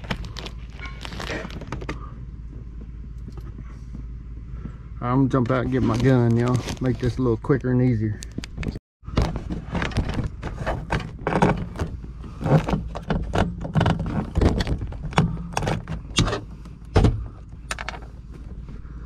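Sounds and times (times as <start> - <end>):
steady low hum: 0.0 - 6.3, 6.9 - 19.0
knocks and rattles in truck cab: 8.6 - 18.7.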